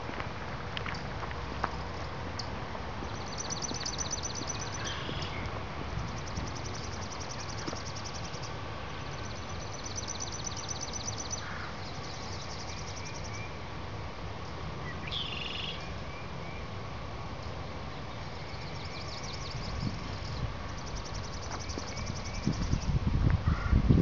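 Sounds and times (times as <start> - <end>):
songbirds singing: 3.0 - 13.6, 14.8 - 16.7, 18.0 - 23.0.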